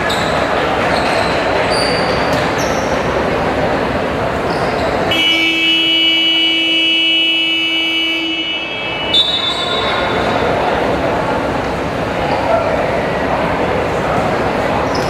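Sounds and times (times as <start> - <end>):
crowd noise in large hall: 0.0 - 15.0
basketball buzzer tone: 5.1 - 10.0.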